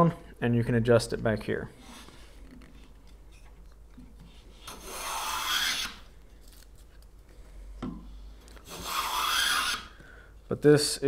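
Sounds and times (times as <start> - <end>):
hand plane shaving wood: 4.6 - 6.0, 8.7 - 10.0.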